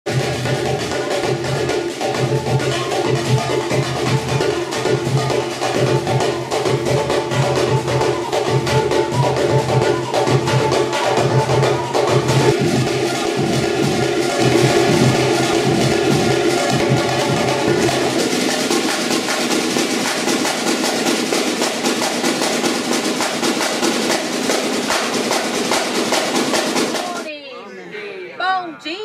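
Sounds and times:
samba drums playing fast rhythm: 0:00.0 - 0:27.3.

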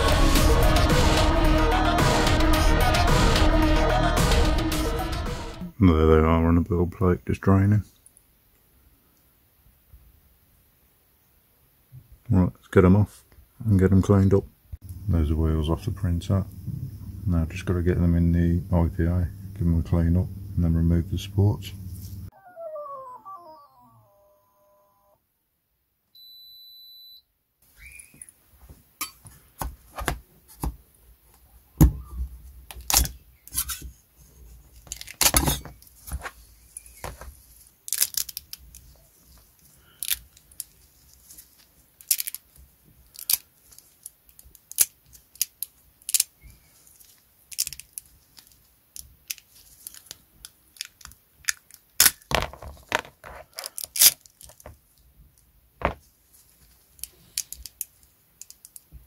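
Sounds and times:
short electronic beep: 0:22.4 - 0:25.2, 0:26.2 - 0:27.3.

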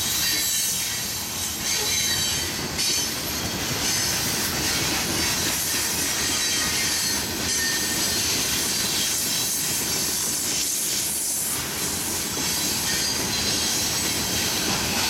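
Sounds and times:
freight train rumbling past: 0:00.0 - 0:15.0
wheels squealing on rails: 0:00.0 - 0:15.0.

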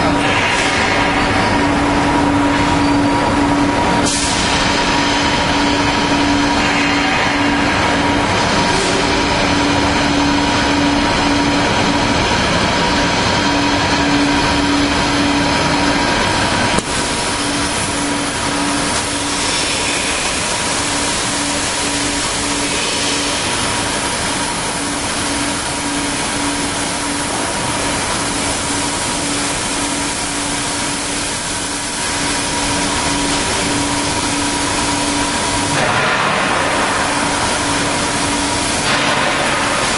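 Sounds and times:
profiling machine humming: 0:00.0 - 0:39.9.

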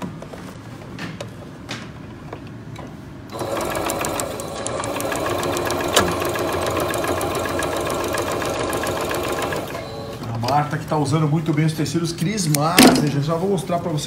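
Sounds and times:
sewing machine stitching: 0:03.3 - 0:10.2.

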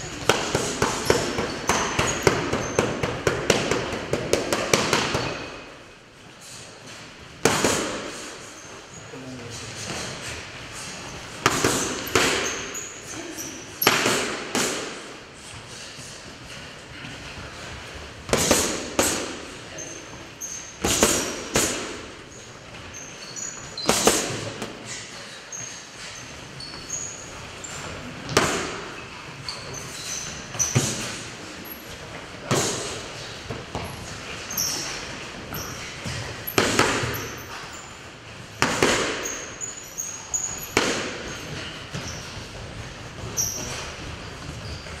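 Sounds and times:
boxing gloves smacking mitts: 0:00.0 - 0:05.6, 0:07.4 - 0:08.3, 0:11.3 - 0:12.8, 0:13.8 - 0:15.2, 0:17.4 - 0:19.5, 0:20.8 - 0:22.1, 0:23.8 - 0:24.8, 0:27.8 - 0:29.0, 0:30.4 - 0:37.7, 0:38.5 - 0:39.6, 0:40.4 - 0:45.0
short high squeaks: 0:19.7 - 0:21.3, 0:22.3 - 0:24.0, 0:24.9 - 0:27.9, 0:39.2 - 0:42.3.

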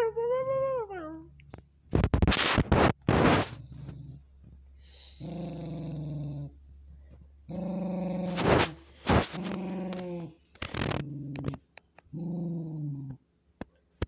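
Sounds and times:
small dog growling: 0:03.1 - 0:06.6, 0:07.4 - 0:13.3.

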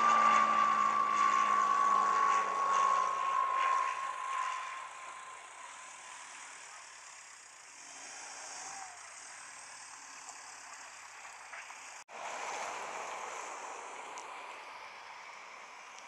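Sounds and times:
light aircraft piston engine: 0:00.0 - 0:16.0
wind hiss: 0:12.1 - 0:16.0.

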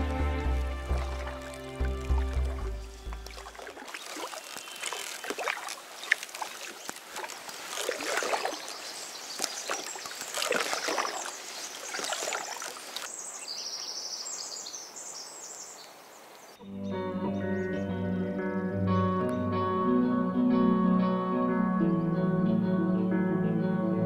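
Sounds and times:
paddle splashing through water: 0:00.0 - 0:13.4.

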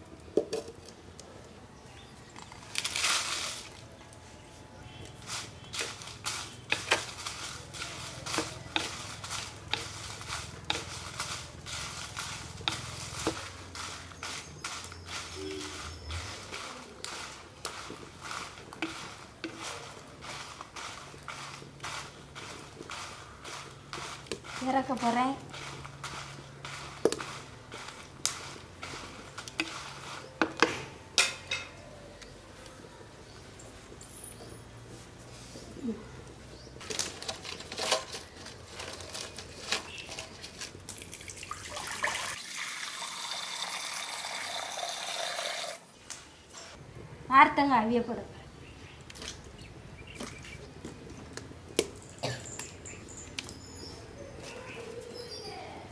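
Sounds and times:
spatula scraping chillies in pot: 0:04.8 - 0:32.4, 0:36.8 - 0:41.2.

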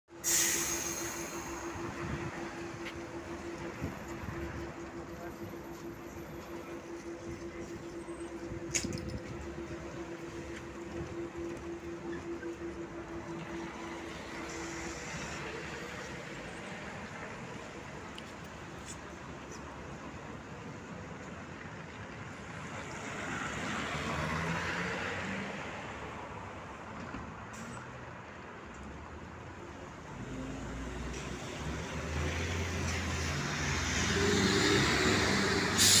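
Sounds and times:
bus engines idling: 0:00.1 - 0:23.8, 0:24.6 - 0:36.0
street traffic noise: 0:00.1 - 0:36.0
tyre hiss on wet road: 0:00.2 - 0:01.6, 0:34.2 - 0:36.0.

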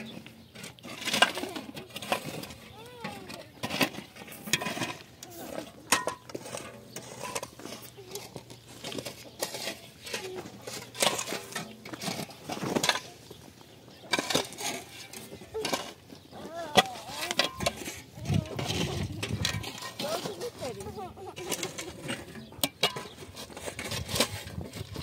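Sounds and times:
shovel chopping stony ground: 0:14.0 - 0:16.0, 0:21.4 - 0:25.0.

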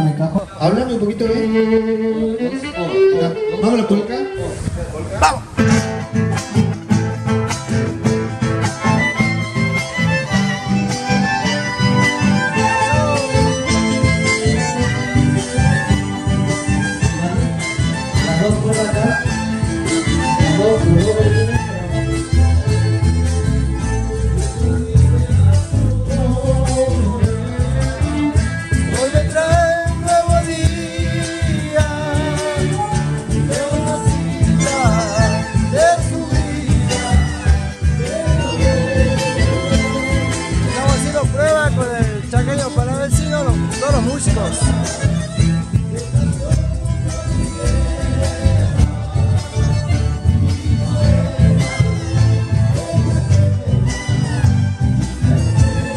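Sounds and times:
accordion: 0:00.0 - 0:55.9
violins: 0:00.0 - 0:55.9
acoustic guitars strumming: 0:01.0 - 0:55.9
person singing: 0:16.5 - 0:22.7, 0:23.4 - 0:41.2, 0:44.4 - 0:55.9
steady drum beat: 0:24.3 - 0:55.9.

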